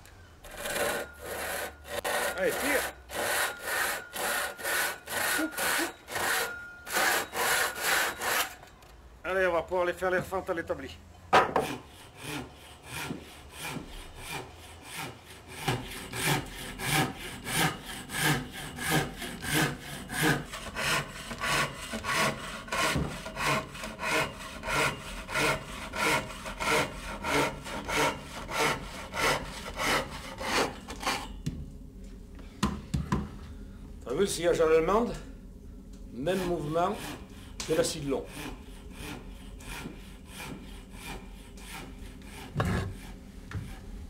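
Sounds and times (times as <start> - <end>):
saw cutting wood: 0.4 - 8.6, 11.4 - 31.3, 36.2 - 43.2.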